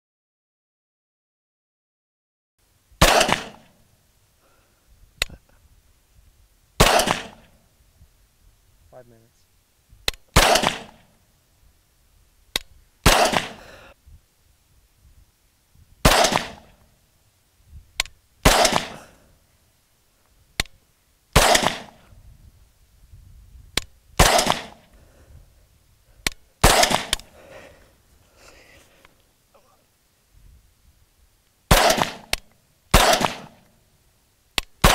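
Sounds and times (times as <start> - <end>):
rifle gunshots with echo: 3.0 - 3.7, 6.8 - 7.6, 10.3 - 11.1, 13.0 - 13.7, 16.0 - 16.8, 18.4 - 19.2, 21.4 - 22.0, 24.2 - 24.8, 26.6 - 27.3, 31.7 - 33.6.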